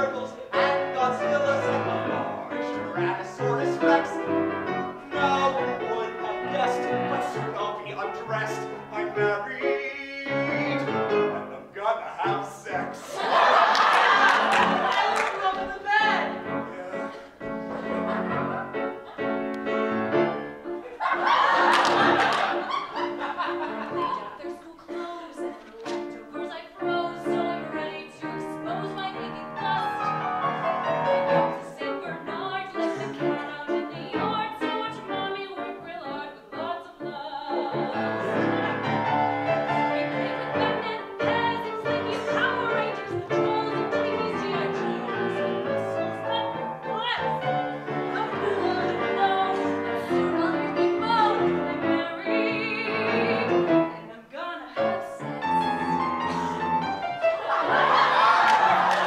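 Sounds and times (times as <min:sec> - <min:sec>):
piano accompaniment: 0:00.0 - 0:59.0
woman singing: 0:24.0 - 0:30.2, 0:31.5 - 0:38.4, 0:39.6 - 0:56.7.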